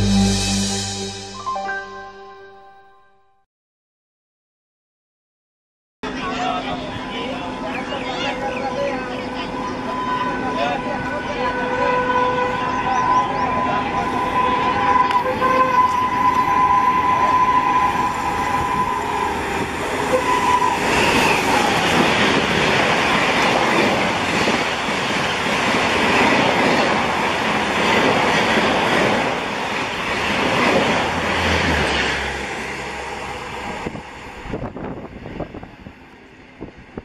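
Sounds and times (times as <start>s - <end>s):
train coaches rumbling past: 6.0s - 37.0s
train horn: 9.2s - 21.6s.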